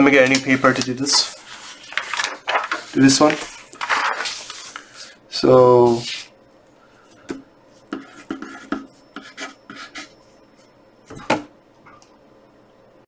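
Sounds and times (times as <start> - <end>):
pencil scratching on paper: 7.9 - 10.1.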